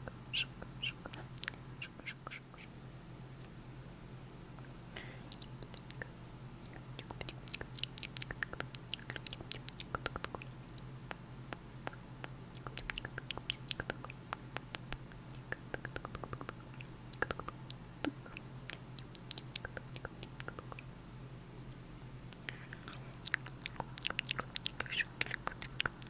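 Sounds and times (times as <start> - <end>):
low steady hum: 0.0 - 26.0
wet mouth clicks and pops: 4.7 - 20.9.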